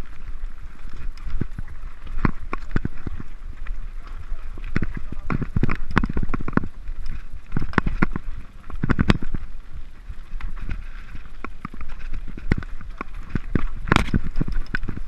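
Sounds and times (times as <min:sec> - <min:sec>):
wind rumble on microphone: 0:00.0 - 0:15.0
bike wheels knocking on stones: 0:04.6 - 0:09.5, 0:10.4 - 0:15.0.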